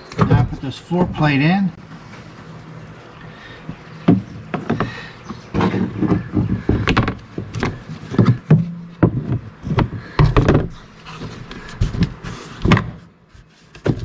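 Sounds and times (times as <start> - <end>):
metal plate knocks and clunks: 5.5 - 10.8.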